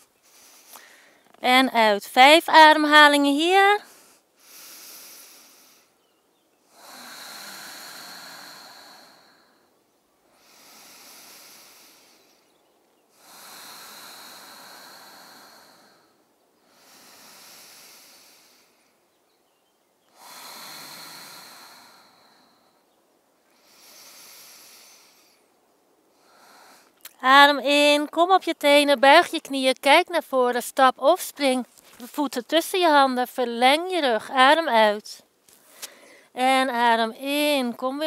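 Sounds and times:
woman breathing deeply: 0.0s - 1.4s, 3.8s - 27.2s, 35.5s - 36.4s.

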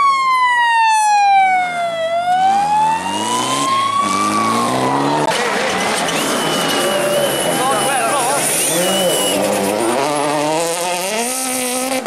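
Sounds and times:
siren wailing: 0.0s - 9.4s.

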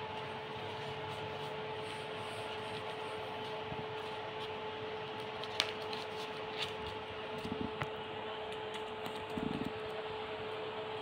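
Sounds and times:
room hum and hiss: 0.0s - 11.0s
bird feet and beak on paper: 0.2s - 7.6s.

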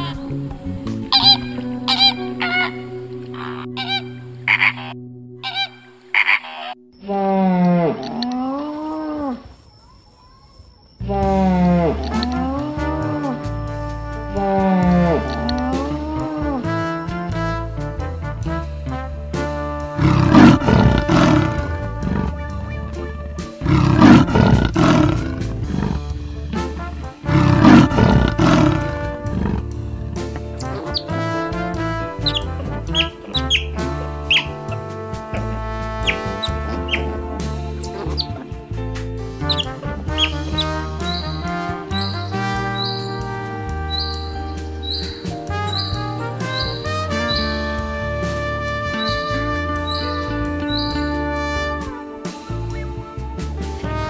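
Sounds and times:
flamingos honking: 0.0s - 9.5s, 11.1s - 54.0s
soft background music: 0.0s - 9.6s, 11.0s - 54.0s
long low mooing call: 11.1s - 17.5s, 18.9s - 39.0s
big cat roaring: 20.0s - 38.8s.

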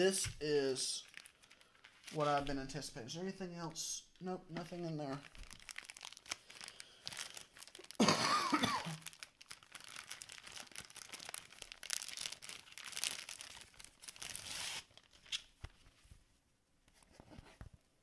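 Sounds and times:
plastic wrapping crinkling and tearing: 0.0s - 2.8s, 4.6s - 15.7s.

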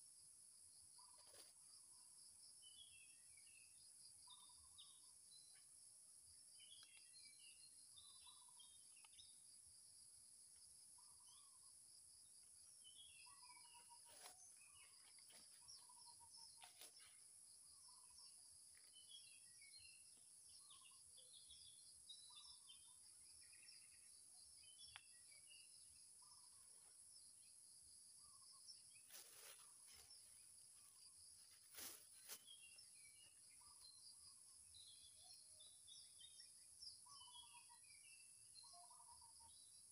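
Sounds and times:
bird chirps: 0.9s - 5.8s, 6.5s - 9.9s, 10.5s - 39.9s
rustles in leaf litter: 31.5s - 32.5s.

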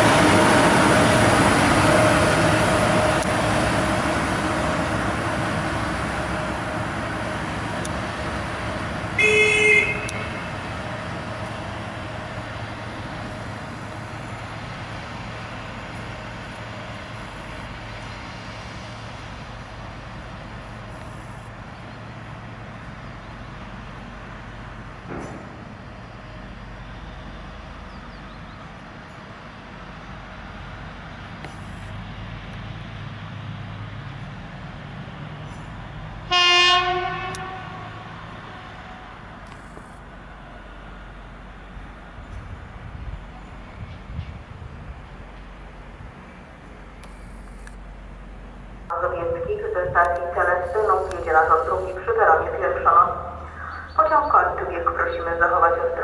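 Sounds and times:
diesel locomotive engine running: 0.0s - 56.0s
locomotive horn blast: 9.2s - 10.6s, 36.2s - 39.2s.

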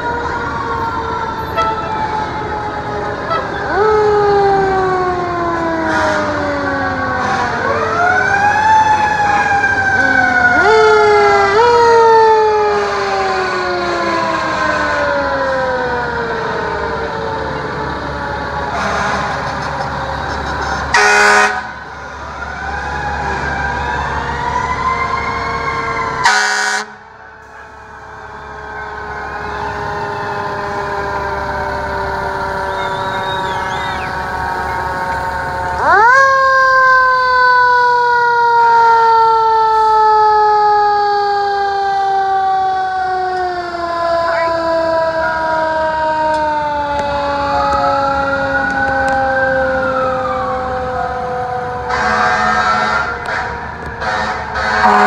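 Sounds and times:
fire engine sirens wailing: 0.0s - 55.0s
truck engines rumbling: 0.0s - 55.0s
loud horn blasts: 1.4s - 2.1s, 3.2s - 3.6s, 5.8s - 8.1s, 12.6s - 15.2s, 18.7s - 19.6s, 20.8s - 21.8s, 26.2s - 35.2s, 51.8s - 55.0s.

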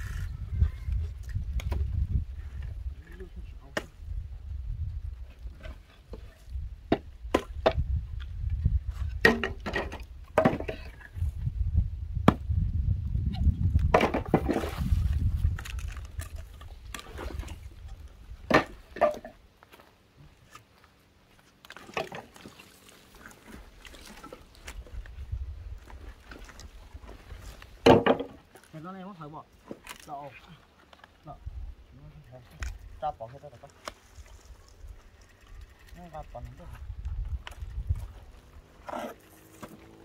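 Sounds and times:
logs knocking together: 9.0s - 11.1s, 13.7s - 14.8s, 18.4s - 19.4s, 21.7s - 22.6s, 25.9s - 28.7s.

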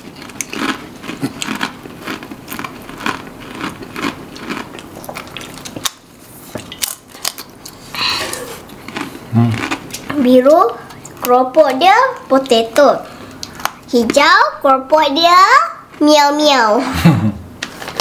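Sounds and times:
crackers being chewed: 0.0s - 12.3s.

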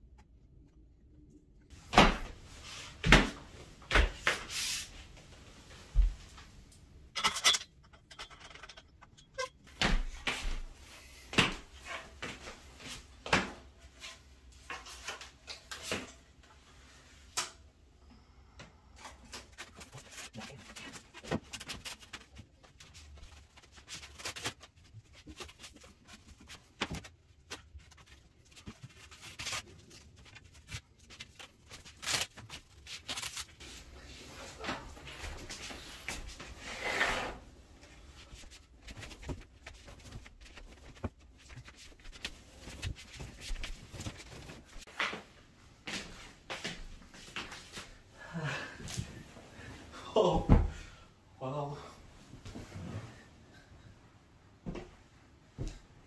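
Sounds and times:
objects knocking and rubbing: 7.2s - 9.6s.

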